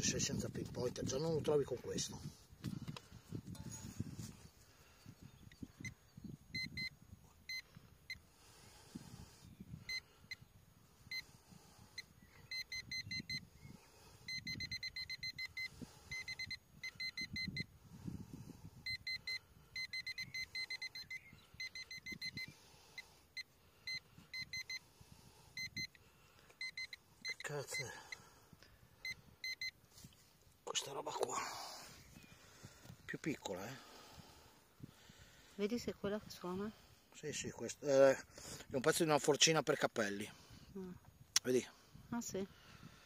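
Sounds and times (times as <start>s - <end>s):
metal detector short beeps: 5.5s - 8.2s, 11.1s - 11.3s, 12.0s - 13.5s, 14.3s - 17.7s, 18.9s - 22.6s, 23.4s - 24.9s, 25.6s - 26.0s, 26.6s - 28.2s, 29.0s - 29.8s.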